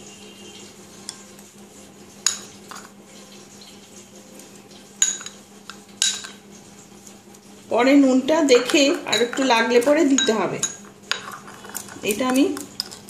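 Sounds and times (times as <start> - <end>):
spoon clinking against glass bowl: 5.0 - 5.4, 6.0 - 6.4, 8.6 - 13.0.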